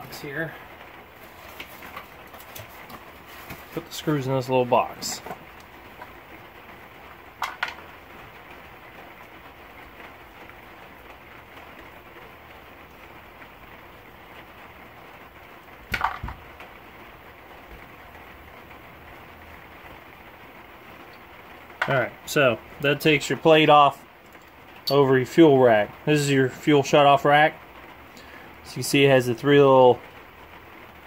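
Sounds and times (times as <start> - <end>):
steady low hiss: 0.0 - 31.0.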